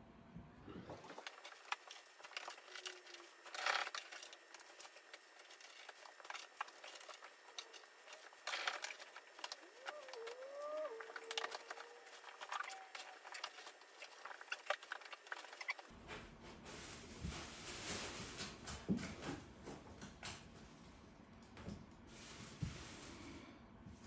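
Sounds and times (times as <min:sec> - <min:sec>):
cat litter scraping: 0:01.0 - 0:19.8.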